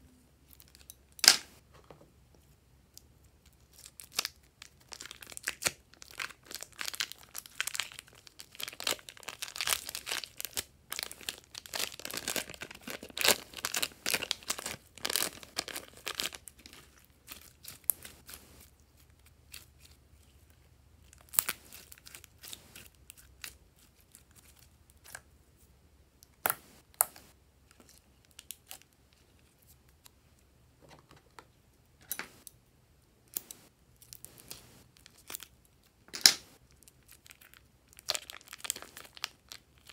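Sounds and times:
plastic piping bag crinkling: 3.8s - 25.0s, 36.3s - 39.9s.

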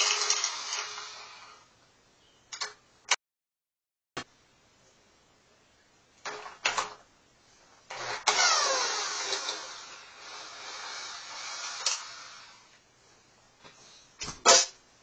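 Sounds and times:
power driver whirring: 7.9s - 12.7s.

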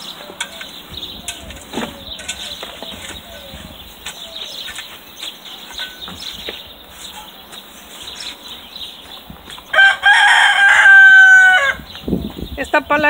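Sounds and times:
faint bird chirps: 0.0s - 9.8s
rooster crowing: 9.7s - 11.9s.

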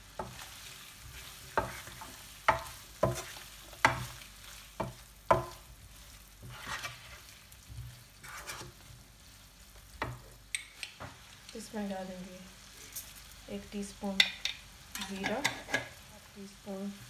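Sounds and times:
meat sizzling in oil: 0.0s - 17.0s
spoon scraping pan: 0.2s - 8.9s, 14.2s - 16.0s
spoon knocking on pan: 2.5s - 4.1s, 4.8s - 5.6s.

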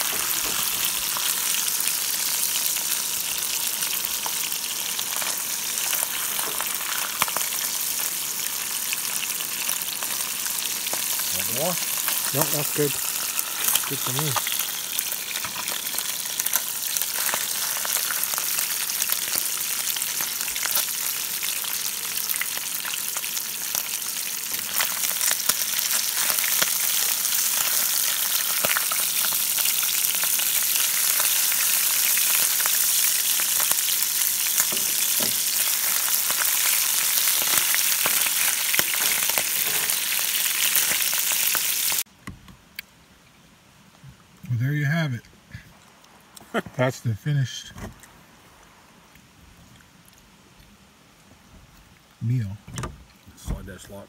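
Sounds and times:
fish sizzling in frying pan: 0.0s - 42.1s.

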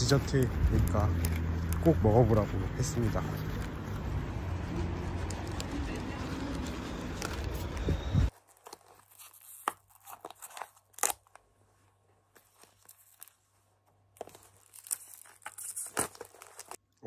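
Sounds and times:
street noise: 0.0s - 8.3s
plastic wrap tearing: 5.2s - 11.5s, 14.2s - 16.8s.

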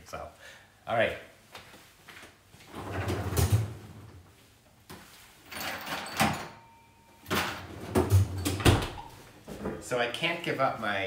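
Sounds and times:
freezer door opened and shut: 2.7s - 3.9s, 7.3s - 9.2s.

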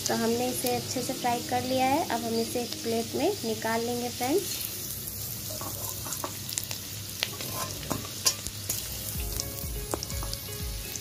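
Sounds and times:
oil sizzling in a pan: 0.0s - 11.0s
metal spoon scraping a pan: 5.4s - 6.6s, 7.2s - 8.8s.

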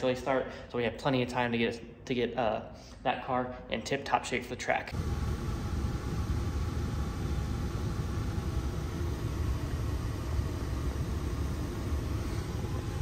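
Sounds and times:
engine low rumble in car cab: 5.0s - 13.0s.

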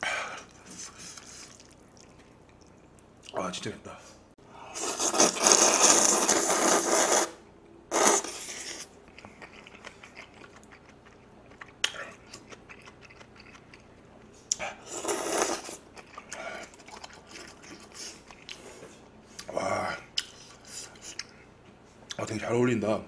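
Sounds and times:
person chewing: 0.4s - 3.3s, 7.9s - 19.5s, 20.1s - 21.5s
person slurping noodles: 4.7s - 8.9s, 14.5s - 18.7s.

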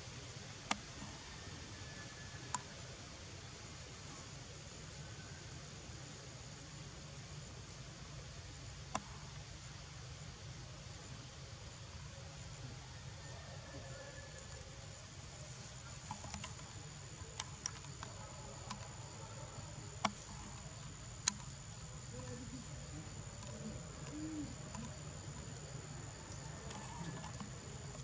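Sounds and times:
background hiss: 0.0s - 28.0s
sharp clicks: 16.0s - 18.9s, 20.0s - 22.2s, 23.4s - 25.6s.

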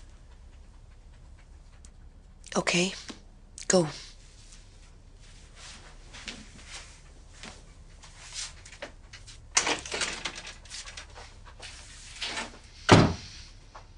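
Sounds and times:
door opening with clatter: 9.6s - 11.2s
door banging shut: 12.9s - 13.3s.

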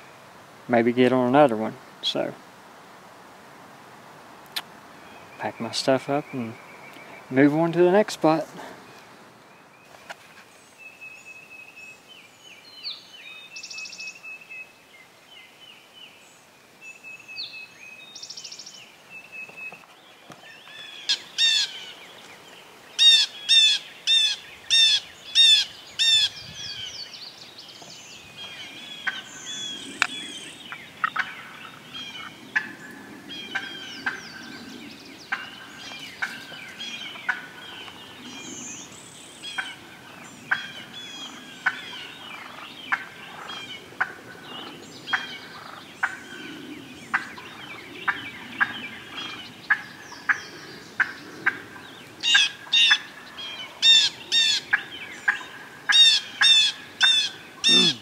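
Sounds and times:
songbirds singing faintly: 0.0s - 58.0s.

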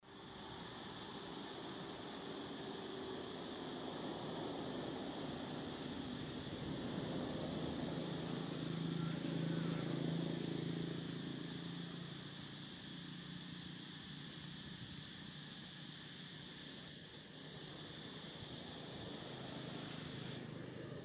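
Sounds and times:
vehicle engine passing by: 4.4s - 13.8s.

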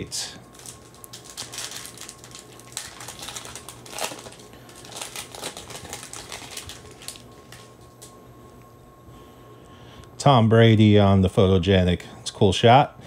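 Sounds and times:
foil wrapper tearing and crinkling: 0.5s - 7.8s.

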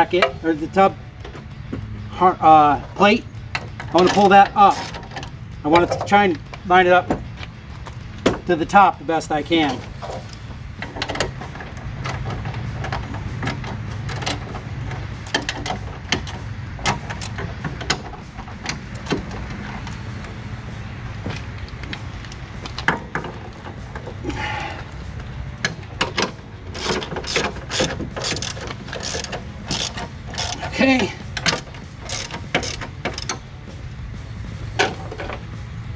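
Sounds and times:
socket ratchet clicking: 25.6s - 33.5s.

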